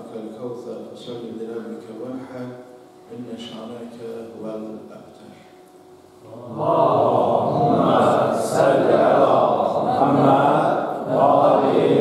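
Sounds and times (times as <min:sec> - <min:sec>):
congregation chanting in unison: 0:06.2 - 0:12.0.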